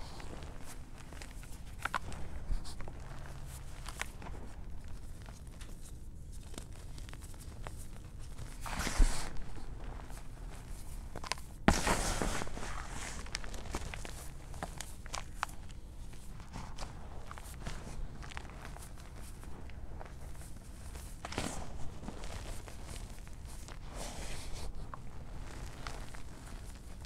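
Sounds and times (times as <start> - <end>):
chalk crunching: 0.0 - 27.0.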